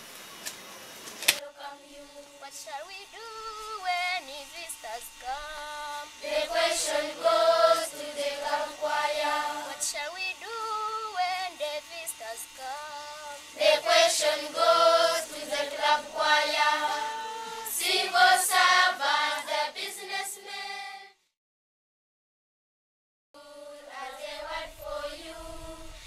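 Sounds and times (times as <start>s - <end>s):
children's choir singing: 1.4s - 4.4s, 5.4s - 11.6s, 13.6s - 21.2s, 23.4s - 26.0s.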